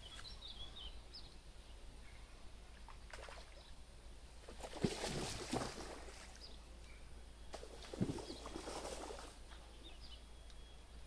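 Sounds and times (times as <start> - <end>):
water splashing: 4.4 - 6.4, 7.6 - 9.5.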